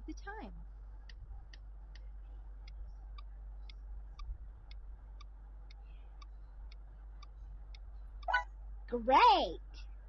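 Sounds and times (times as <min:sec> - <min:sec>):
low steady hum: 0:00.0 - 0:10.0
clock ticking: 0:01.0 - 0:08.4.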